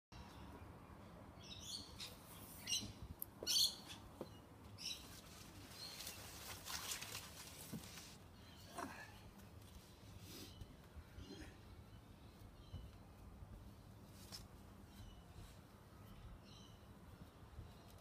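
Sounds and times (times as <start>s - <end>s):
birds chirping: 0.2s - 14.2s.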